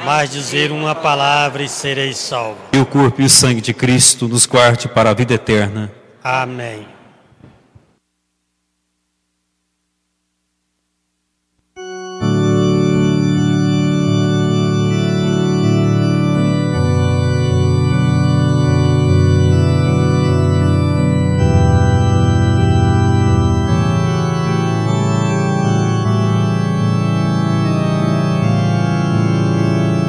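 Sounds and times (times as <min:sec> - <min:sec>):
organ playing held chords: 0:11.7 - 0:30.0.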